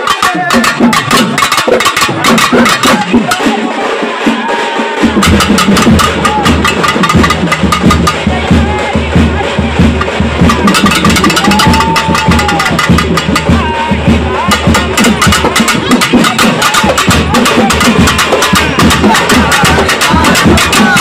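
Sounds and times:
fast loud drumming with sticks: 0.0s - 21.0s.

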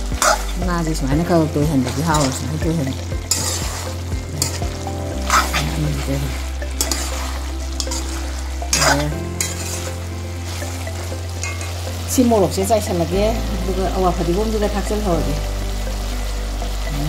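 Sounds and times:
food frying and sizzling: 0.0s - 17.0s
low steady drone: 0.0s - 17.0s
wooden spatula scraping pan: 3.3s - 4.6s, 5.2s - 10.6s.

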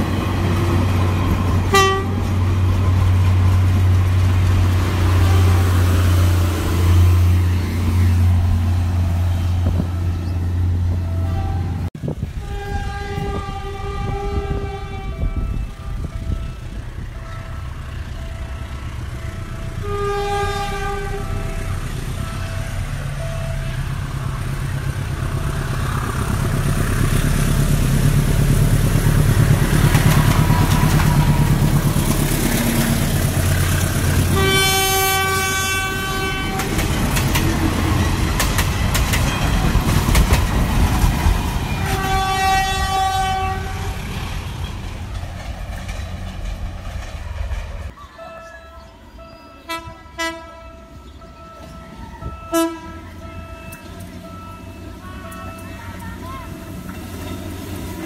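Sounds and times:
locomotive engine rumble: 0.0s - 58.0s
locomotive horn chord: 1.6s - 3.2s, 5.0s - 6.4s, 11.0s - 24.2s, 34.2s - 37.2s, 41.7s - 44.2s, 48.2s - 56.8s
wheels clattering over rails: 24.1s - 34.5s, 36.2s - 48.0s.

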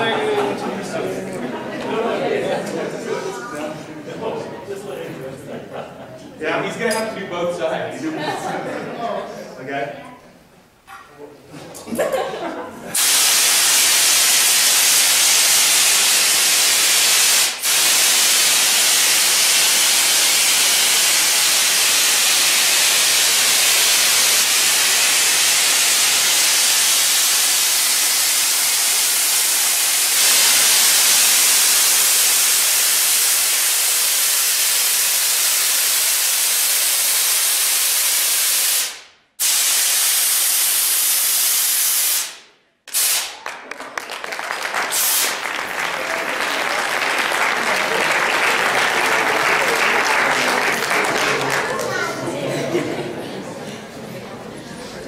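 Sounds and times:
loud steady hiss: 12.9s - 43.4s, 44.9s - 46.2s.

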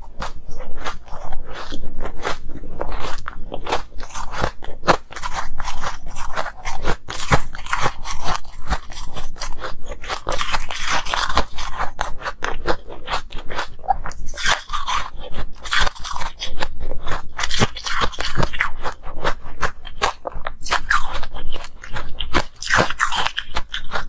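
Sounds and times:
chewing ice crunching: 0.0s - 24.0s.

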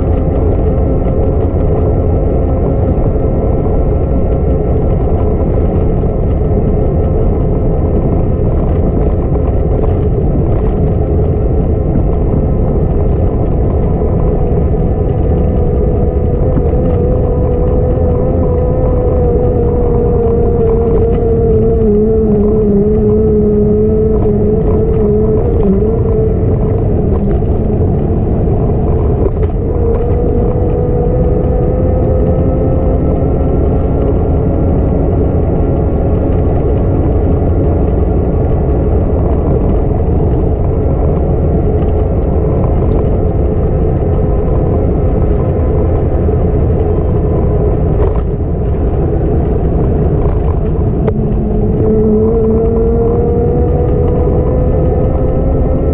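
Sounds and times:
continuous whine: 0.0s - 55.9s
wind rush: 0.0s - 55.9s.

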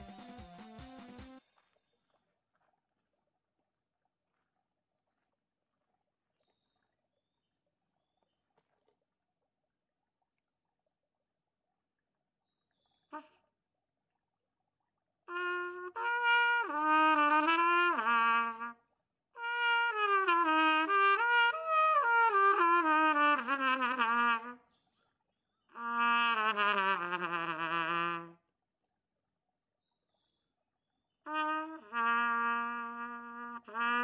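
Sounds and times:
solo trumpet melody: 15.3s - 18.8s, 19.4s - 24.6s, 25.7s - 28.4s, 31.3s - 34.0s.

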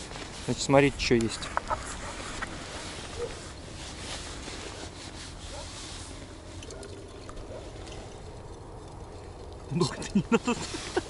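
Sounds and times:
cloth bag rustling: 1.8s - 6.5s.

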